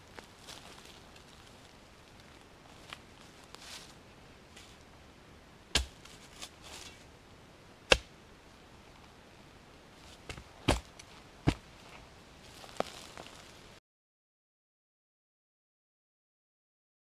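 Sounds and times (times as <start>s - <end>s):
leaf rustling: 0.0s - 5.0s, 5.7s - 7.1s, 10.0s - 13.8s
spade chopping into ground: 5.7s - 7.0s, 7.9s - 8.1s, 10.2s - 11.6s.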